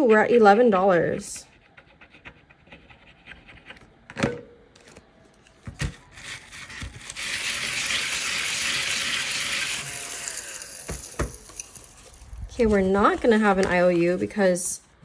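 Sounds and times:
handheld vacuum running: 7.1 - 12.2.

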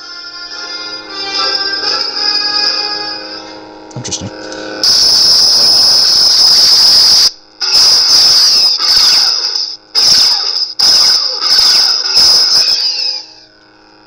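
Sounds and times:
lightsaber hissing squealing effect: 4.8 - 13.5.

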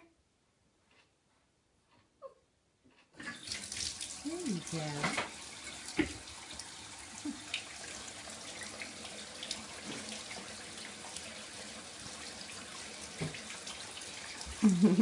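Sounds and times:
faucet running into bathtub: 3.2 - 15.0.

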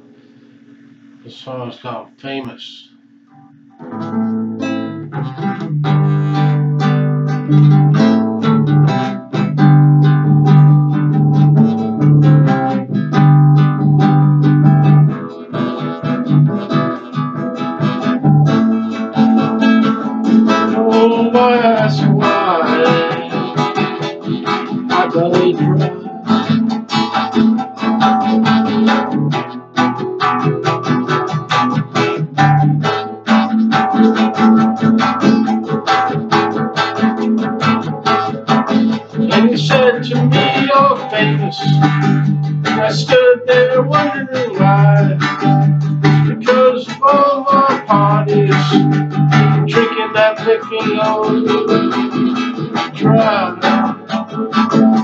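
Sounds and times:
guitar strumming chords: 0.0 - 55.0
guitar melody with bending notes: 3.3 - 55.0.

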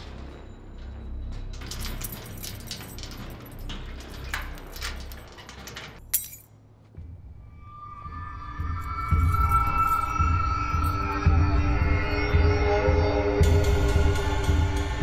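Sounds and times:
keys rattling against metal gate: 0.8 - 6.5, 9.1 - 11.1
keys dropping onto concrete: 1.6 - 6.5.

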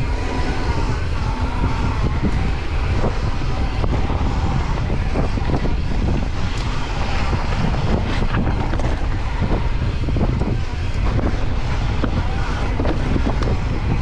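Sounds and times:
mountain bike rattling: 0.0 - 14.0
wind buffeting microphone: 0.0 - 14.0.

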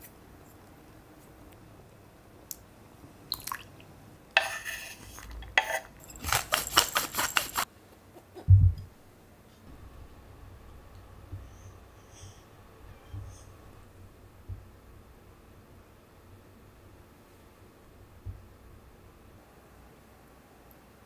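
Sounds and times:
wooden spoon scraping cutting board: 4.4 - 7.6.

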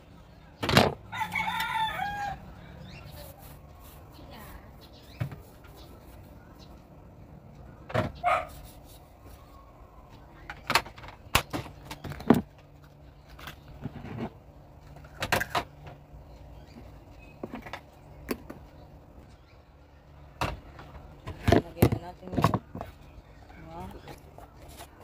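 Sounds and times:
plastic trays knocking and clattering: 20.4 - 22.9.

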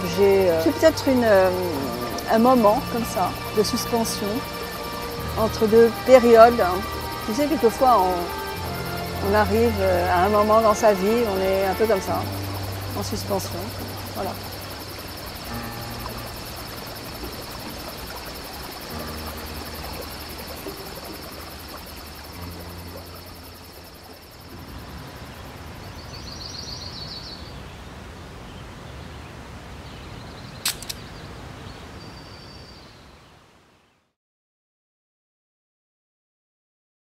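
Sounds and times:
faint low music notes: 0.0 - 26.2
insects droning: 0.0 - 28.8, 30.2 - 33.6
sharp click: 30.6 - 31.0.

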